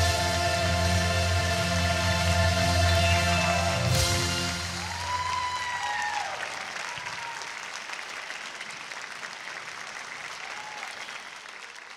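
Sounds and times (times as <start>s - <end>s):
audience applauding: 2.8s - 11.9s.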